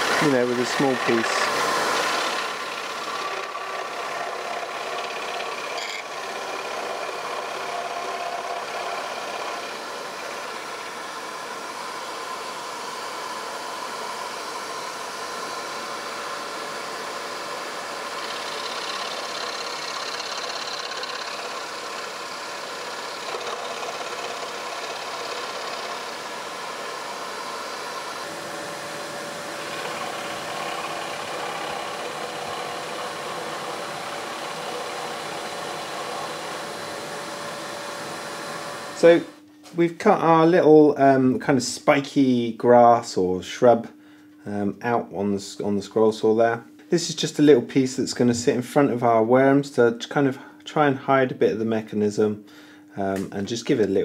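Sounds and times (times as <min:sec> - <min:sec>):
scroll saw cutting wood: 0:00.0 - 0:39.3.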